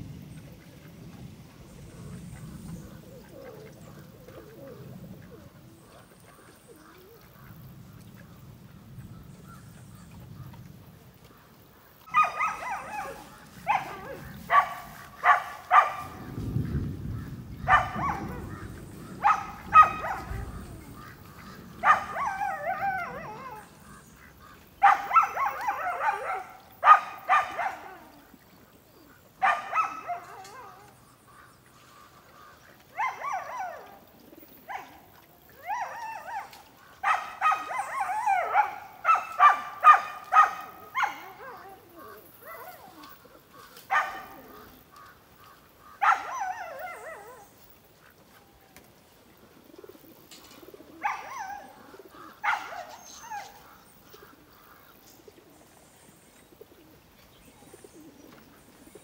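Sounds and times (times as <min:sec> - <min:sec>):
dog barking: 0:12.1 - 0:16.3, 0:17.7 - 0:18.6, 0:19.2 - 0:20.6, 0:21.8 - 0:23.7, 0:24.8 - 0:28.1, 0:29.4 - 0:30.9, 0:33.0 - 0:33.9, 0:35.8 - 0:43.1, 0:43.9 - 0:44.6, 0:46.0 - 0:47.4, 0:51.0 - 0:51.7, 0:52.4 - 0:53.6.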